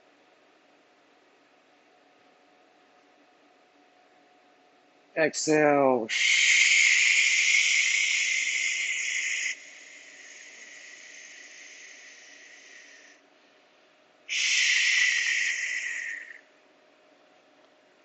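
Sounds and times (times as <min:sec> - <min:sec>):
hissing breath exhale: 0:06.1 - 0:13.2, 0:14.3 - 0:16.4.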